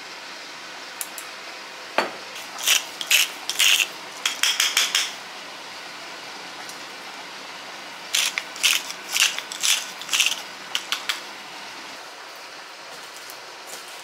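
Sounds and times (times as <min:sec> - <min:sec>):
pepper mill grinding: 0:02.4 - 0:05.1, 0:08.1 - 0:11.2
pepper mill clicks: 0:02.6 - 0:05.1, 0:08.2 - 0:11.2.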